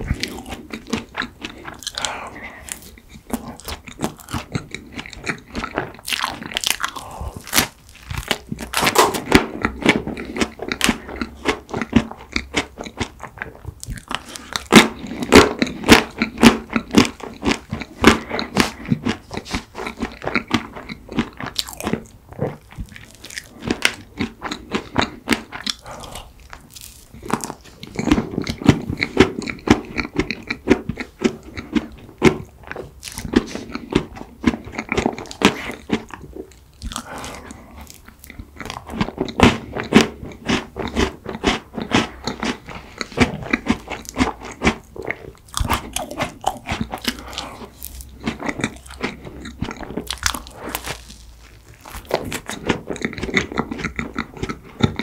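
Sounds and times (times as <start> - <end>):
crisp crunching: 0.0 - 11.9, 12.9 - 30.1, 41.3 - 55.0
chewing: 0.0 - 55.0.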